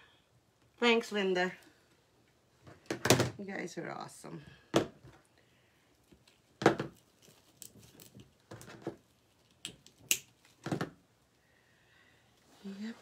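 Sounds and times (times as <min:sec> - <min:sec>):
mesh crinkling and rustling: 0:05.9 - 0:10.9.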